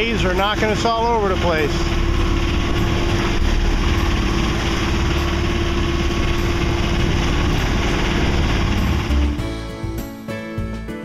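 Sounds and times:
rushing wind and water: 0.0 - 9.4
boat engine running: 0.0 - 10.2.

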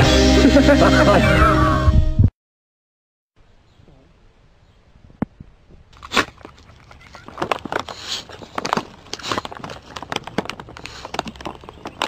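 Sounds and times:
dry grass and leaves crackling: 5.1 - 12.0
short sharp crunches: 5.9 - 12.0.

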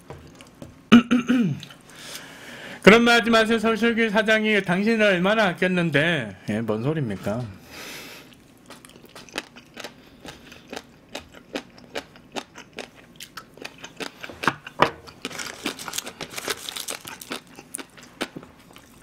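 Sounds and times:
man chewing crunchy food: 0.0 - 0.9, 8.1 - 19.0.

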